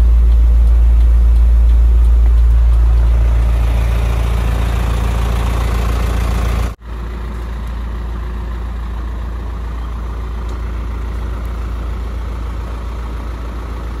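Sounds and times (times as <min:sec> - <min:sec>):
diesel truck engine idling: 0:00.0 - 0:14.0.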